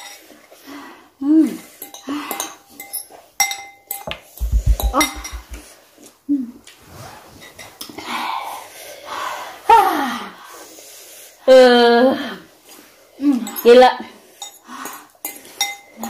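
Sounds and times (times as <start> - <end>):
low rumbling thud: 4.4 - 5.6
utensils clinking against a bowl: 14.3 - 16.0.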